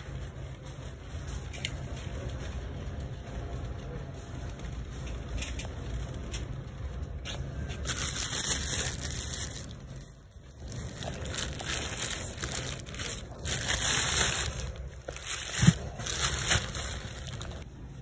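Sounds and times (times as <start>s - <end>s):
plastic bags crinkling: 7.7s - 17.9s.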